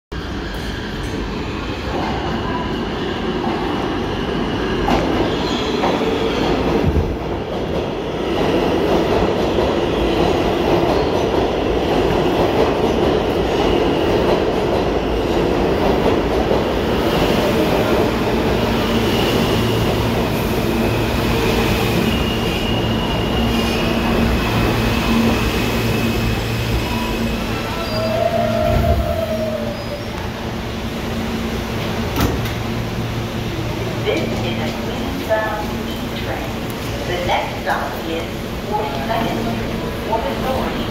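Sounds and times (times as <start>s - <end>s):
high wheel squeals: 26.7s - 30.2s.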